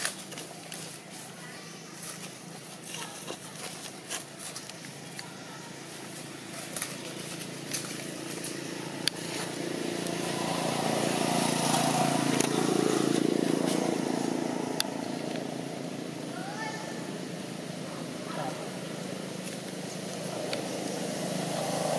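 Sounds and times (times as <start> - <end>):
dry leaves crackling: 0.0 - 21.9
motor vehicle passing by: 6.1 - 21.9.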